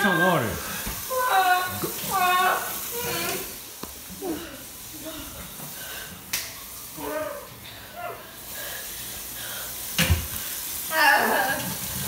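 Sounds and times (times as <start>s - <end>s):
tap running into a sink: 10.0s - 10.3s.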